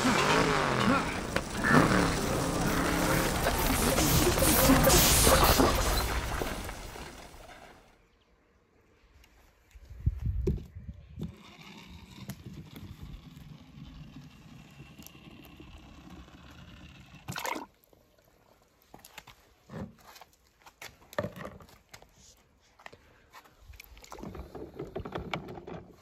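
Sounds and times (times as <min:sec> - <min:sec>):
water sounds: 0:00.0 - 0:07.8.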